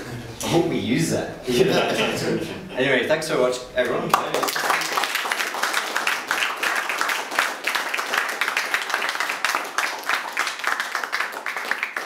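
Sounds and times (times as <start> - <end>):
audience applauding: 4.1 - 12.0.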